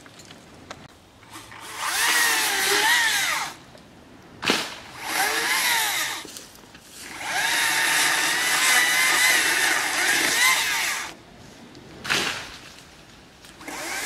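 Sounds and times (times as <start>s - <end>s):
chainsaw revving: 1.4s - 3.6s, 5.0s - 6.2s, 7.1s - 11.2s, 13.6s - 14.0s
sharp crack: 4.4s - 5.0s, 12.0s - 12.9s.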